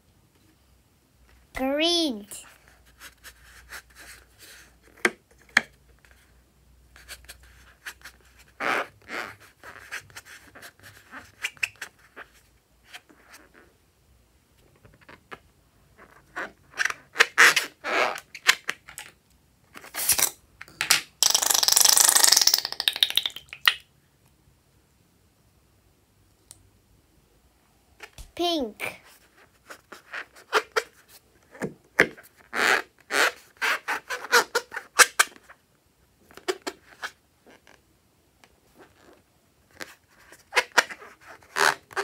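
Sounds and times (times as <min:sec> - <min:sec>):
rubber balloons squeaking: 0:21.2 - 0:23.5, 0:32.4 - 0:35.2, 0:40.5 - 0:42.0
filling squeezed out crackling: 0:21.2 - 0:23.8.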